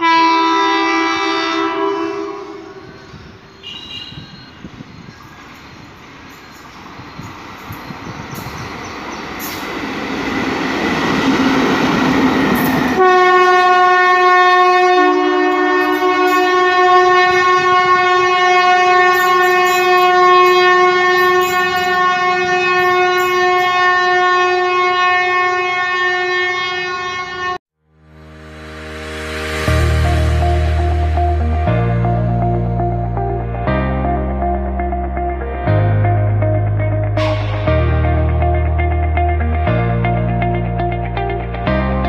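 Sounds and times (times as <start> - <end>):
locomotive horn blast: 0.0 - 4.7, 11.4 - 27.6, 37.2 - 38.1
electric locomotive passing: 0.0 - 41.6.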